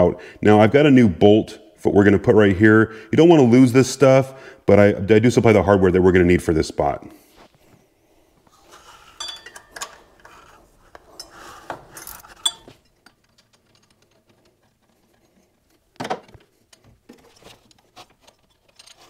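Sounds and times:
wrench and bolt clinking: 9.1 - 15.2, 16.3 - 19.0.

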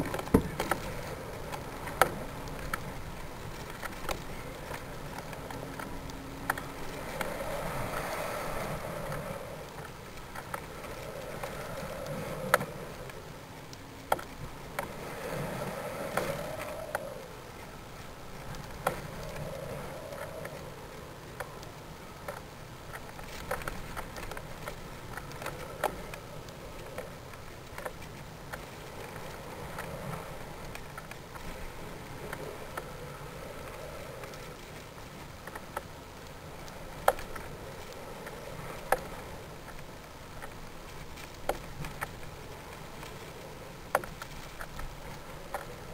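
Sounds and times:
small clicks and knocks: 9.1 - 15.0, 33.7 - 45.9.

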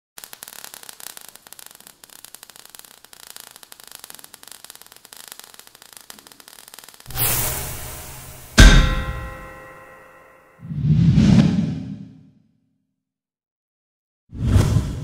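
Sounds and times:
sparks crackling: 0.2 - 10.5.

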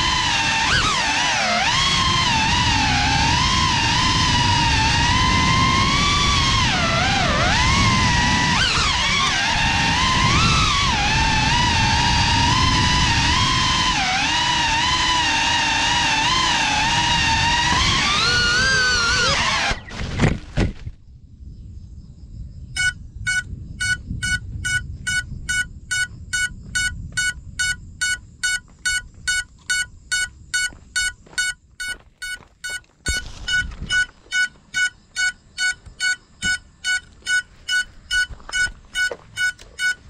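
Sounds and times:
short high beeps: 22.8 - 40.0.

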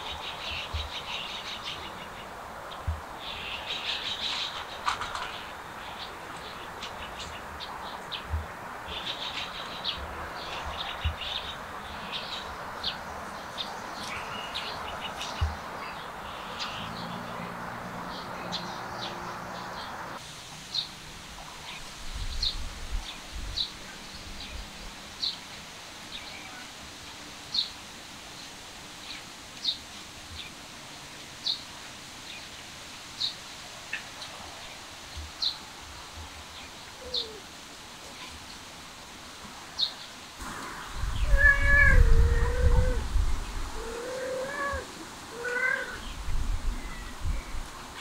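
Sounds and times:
cat meowing: 41.2 - 43.1, 43.8 - 46.1.

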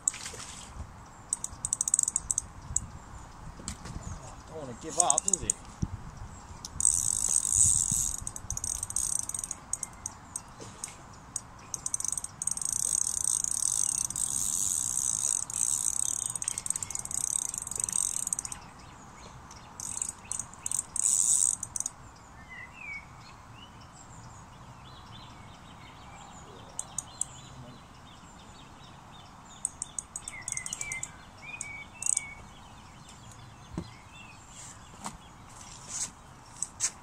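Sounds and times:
small bird chirping: 1.1 - 3.4, 4.0 - 5.6, 6.2 - 21.9, 24.9 - 36.9
fishing reel clicking and whirring: 1.3 - 2.5, 5.0 - 5.6, 6.6 - 10.5, 11.7 - 18.6, 19.8 - 21.9, 29.7 - 31.1, 32.0 - 32.2.

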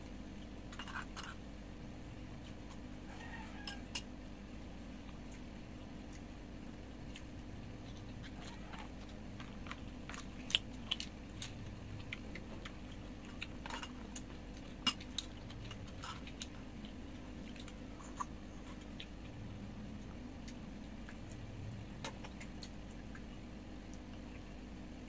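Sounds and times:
faint low hum: 0.0 - 25.0
chewing and biting food: 5.0 - 24.6.

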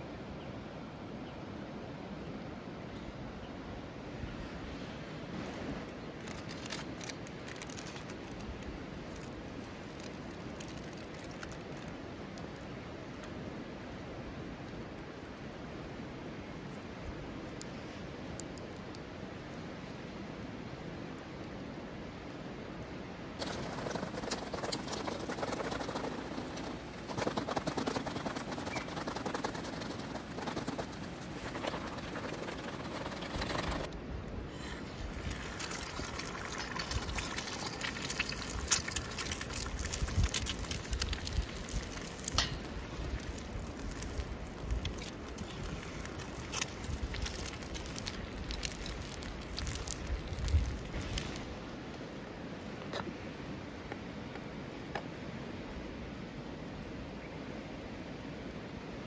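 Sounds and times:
plastic cup crinkling: 6.2 - 11.8, 35.1 - 51.4
wind hiss: 13.3 - 54.7.

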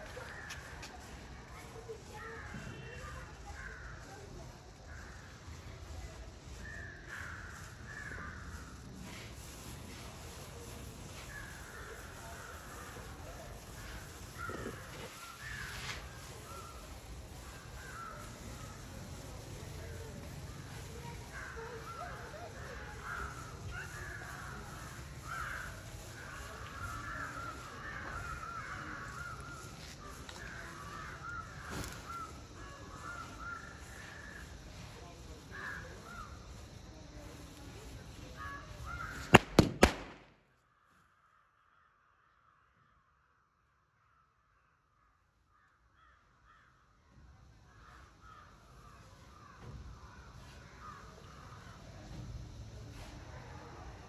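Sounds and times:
birds calling: 0.0 - 37.1
burning matchstick rustle: 0.0 - 40.3
firecracker hiss: 0.0 - 40.4, 47.7 - 54.0
crows cawing: 21.3 - 34.6, 35.6 - 36.4, 45.5 - 46.8.

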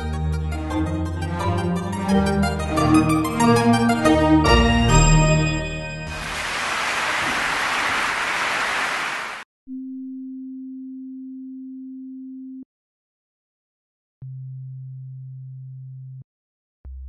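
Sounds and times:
synthesized noise hiss: 6.2 - 9.4.

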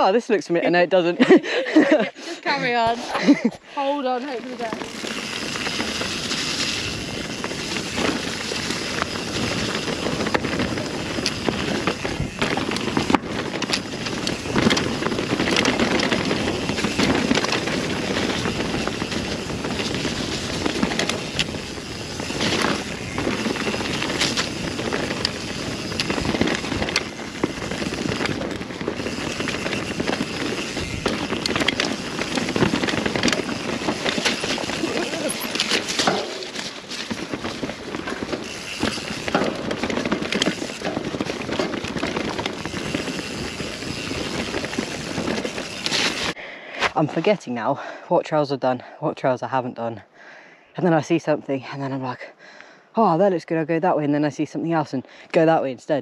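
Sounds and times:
tyres on dirt: 1.7 - 47.6
bike clattering over bumps: 4.2 - 46.4
wind on microphone: 4.7 - 46.4.

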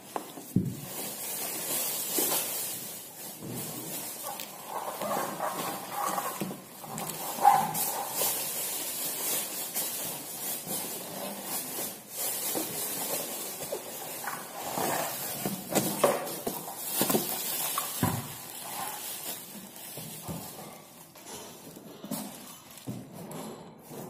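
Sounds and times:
plastic wrapping crinkling: 0.0 - 23.2
cardboard rubbing: 3.4 - 20.9.

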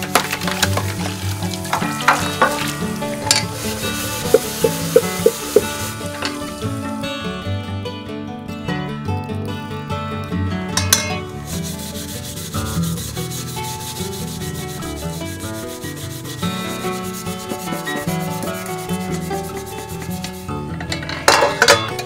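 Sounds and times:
scrubbing an iron pan: 0.1 - 6.8, 11.3 - 20.6.

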